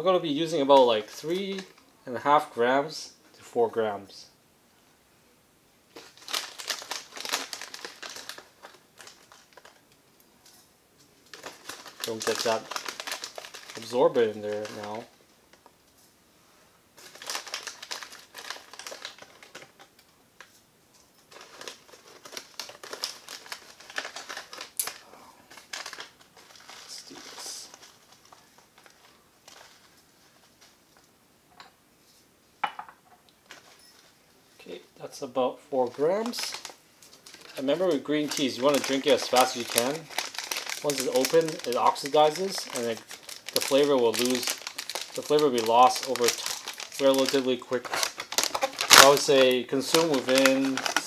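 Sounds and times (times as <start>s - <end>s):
foil pouch crinkling: 5.9s - 9.9s, 11.2s - 15.7s, 17.0s - 20.0s, 21.3s - 30.8s, 35.8s - 51.0s.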